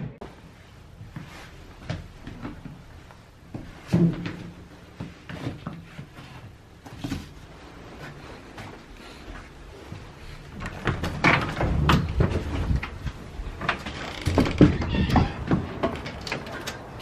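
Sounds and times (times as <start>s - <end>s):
shuffling feet: 0.2s - 10.9s.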